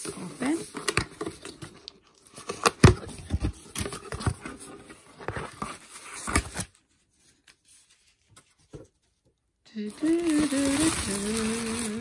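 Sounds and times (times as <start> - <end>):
crinkling: 9.8 - 12.0.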